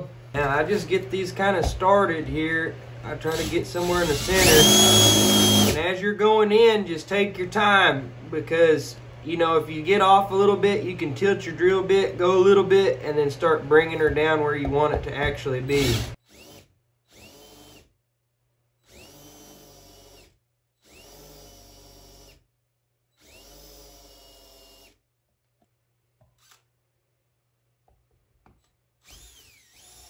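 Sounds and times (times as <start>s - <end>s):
hand drill boring into aluminum: 3.3s - 5.8s, 15.8s - 17.9s, 29.0s - 30.0s.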